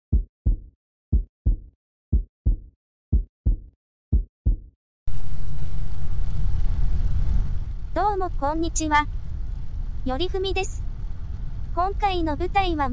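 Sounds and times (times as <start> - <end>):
heartbeat thumps: 0.1 - 4.7
car driving rumble: 5.1 - 12.9.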